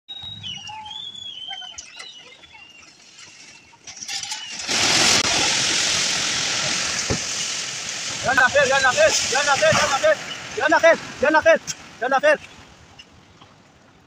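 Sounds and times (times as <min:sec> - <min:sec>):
birds chirping: 0:00.1 - 0:04.8, 0:08.2 - 0:13.2
rushing floodwater roar: 0:02.6 - 0:14.0.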